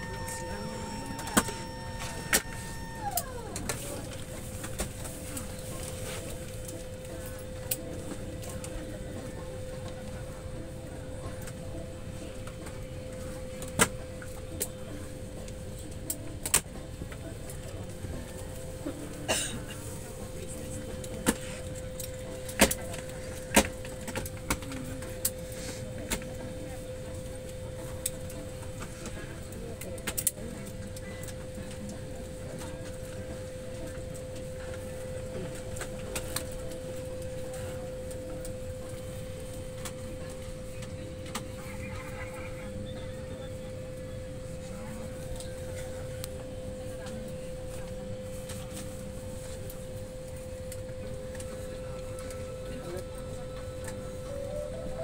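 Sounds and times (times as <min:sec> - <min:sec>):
airliner cabin ventilation rumble: 0:00.0 - 0:55.0.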